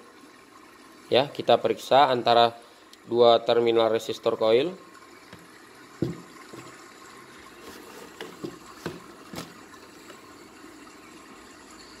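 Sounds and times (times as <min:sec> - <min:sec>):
faint steady hiss: 0:00.0 - 0:12.0
light taps and clicks on workbench: 0:05.4 - 0:06.7.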